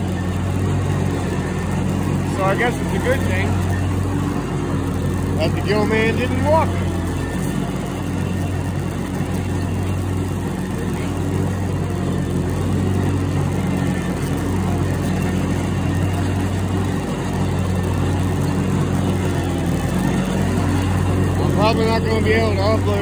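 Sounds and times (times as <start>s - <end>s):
riding lawn mower engine: 0.0s - 23.0s.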